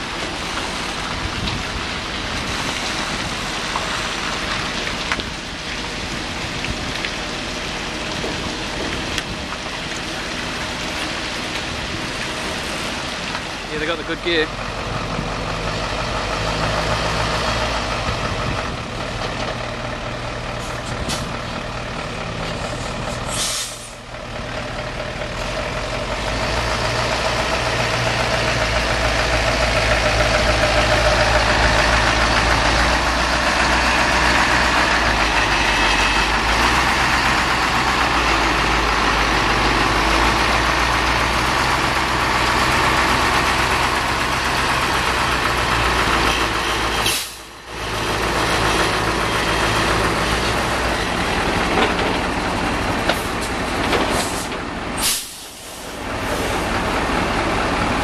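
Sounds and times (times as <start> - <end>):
truck diesel engine under load: 0.0 - 58.0
air brake hiss: 23.3 - 24.0, 47.0 - 47.5, 54.2 - 56.6.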